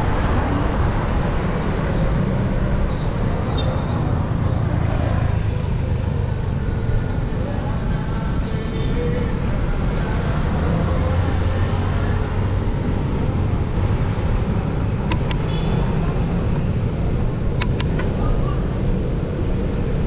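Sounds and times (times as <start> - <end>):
road traffic rumble: 0.0 - 20.0
sharp clicks: 14.9 - 15.5, 17.5 - 18.1.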